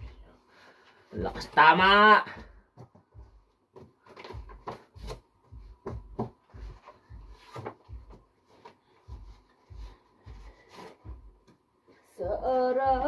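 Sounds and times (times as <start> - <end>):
items knocking in cardboard box: 3.8 - 5.2, 5.8 - 8.2.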